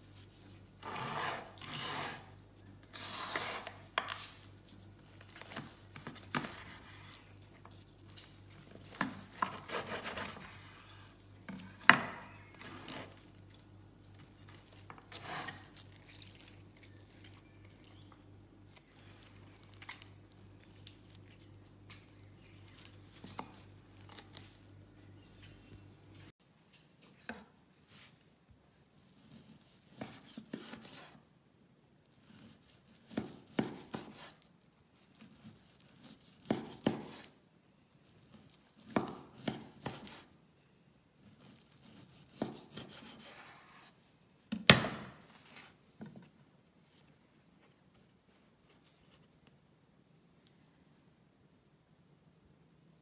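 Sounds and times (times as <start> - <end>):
knife cutting meat crust: 8.6 - 10.6, 32.1 - 37.4, 38.1 - 40.3, 41.2 - 43.9.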